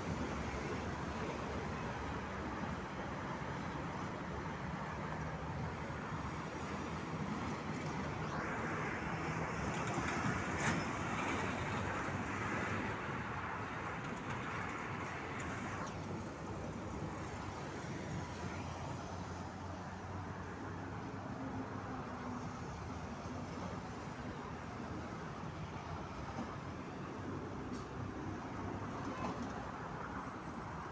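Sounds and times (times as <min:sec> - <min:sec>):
road traffic passing: 0:00.0 - 0:30.9.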